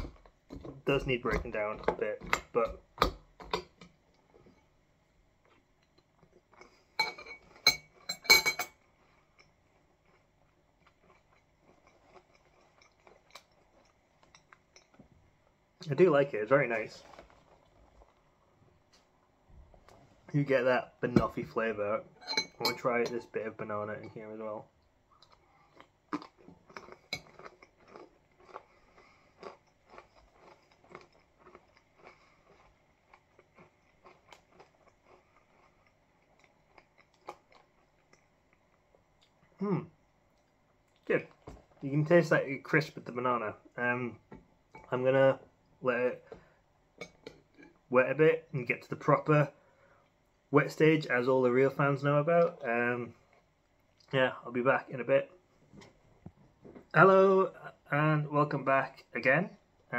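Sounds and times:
chewing crunchy cereal: 0:08.9 - 0:14.8, 0:25.1 - 0:39.4
spoon clinking glass bowl: 0:22.2 - 0:23.2.

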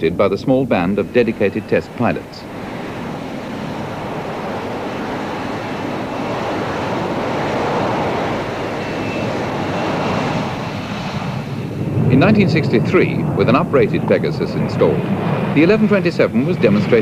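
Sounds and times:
jet engine roar: 0:00.0 - 0:17.0.

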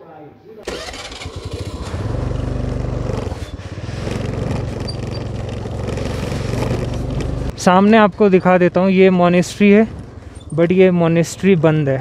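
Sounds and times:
scooter engine idling: 0:00.7 - 0:07.5.

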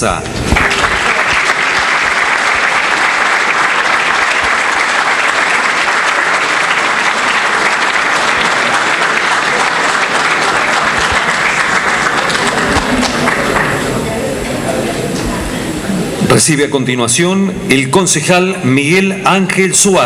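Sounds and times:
audience applauding: 0:00.0 - 0:15.3.

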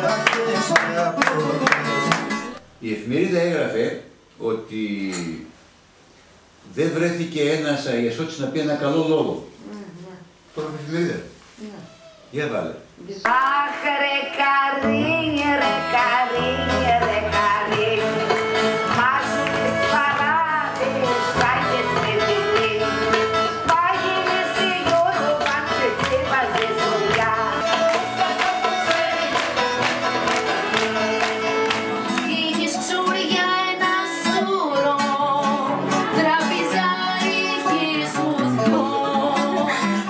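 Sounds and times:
person singing folk song: 0:00.0 - 0:02.6, 0:13.3 - 0:40.0
acoustic guitar and plucked strings: 0:00.0 - 0:02.7, 0:13.5 - 0:40.0.

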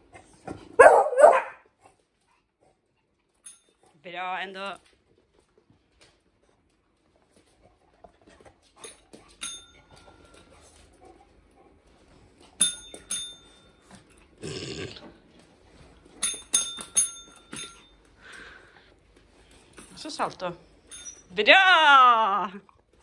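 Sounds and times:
dog barking: 0:00.8 - 0:01.6
pet bell metallic dings: 0:09.4 - 0:10.3, 0:12.6 - 0:13.9, 0:16.2 - 0:18.0, 0:20.9 - 0:21.4.

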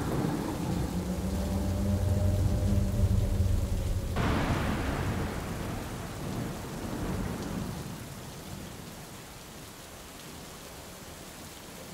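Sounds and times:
thunder rumbling: 0:00.0 - 0:09.2
rain hissing: 0:00.0 - 0:11.9.

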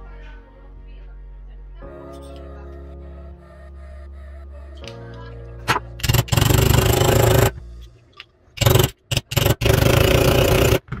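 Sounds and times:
power tool whirring: 0:06.0 - 0:07.5, 0:08.6 - 0:10.8.

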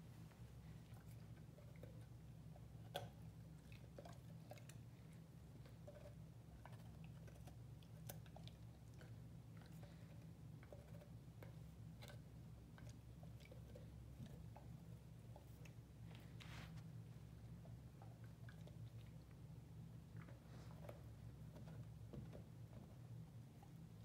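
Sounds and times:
dog crunching a carrot: 0:00.9 - 0:15.8.

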